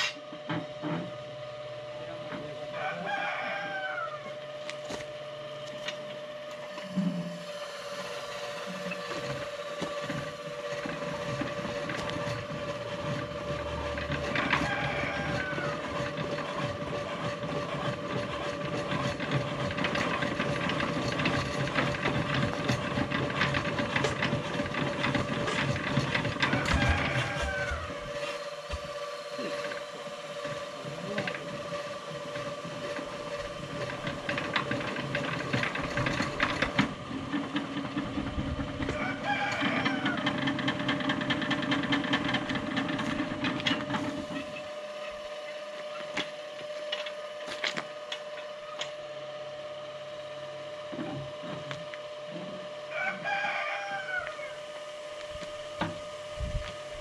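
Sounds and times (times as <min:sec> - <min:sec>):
mechanical hum: 0:00.0 - 0:57.0
rooster crowing: 0:02.7 - 0:04.4, 0:14.2 - 0:16.4, 0:26.3 - 0:28.4, 0:38.8 - 0:40.6, 0:52.8 - 0:55.0.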